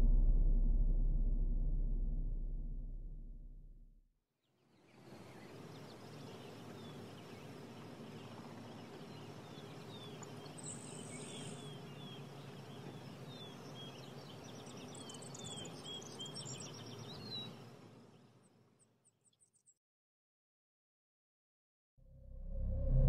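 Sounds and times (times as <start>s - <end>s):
low background rumble: 0.0s - 4.0s
small birds chirping: 4.6s - 18.5s.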